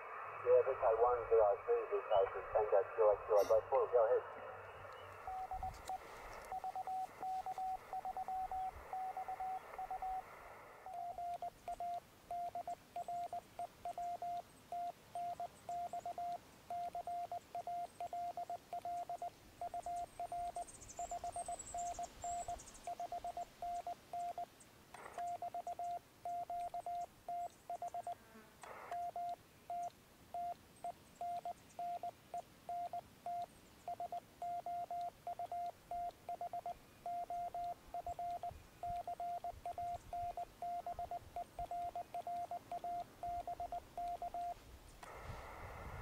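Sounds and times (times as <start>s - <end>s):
radio hiss: 0.0s - 11.2s, 28.6s - 29.1s, 44.2s - 46.0s
morse code beeps: 5.2s - 10.2s, 10.9s - 24.5s, 25.2s - 28.2s, 28.9s - 30.6s, 31.2s - 32.1s, 32.7s - 44.6s.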